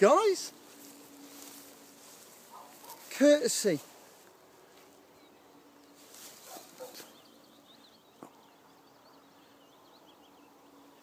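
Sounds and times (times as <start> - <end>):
cloth rustling on microphone: 0.6 - 3.2, 5.8 - 7.2.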